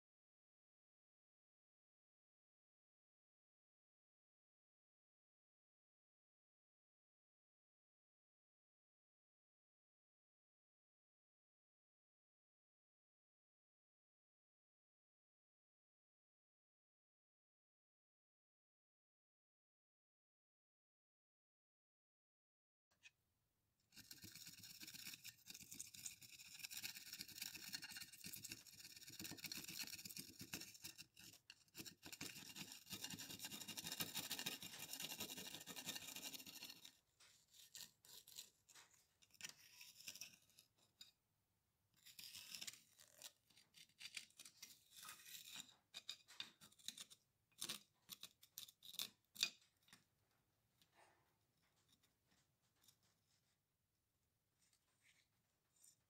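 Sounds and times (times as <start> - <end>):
screwdriver scraping soil off metal: 24.0 - 36.9.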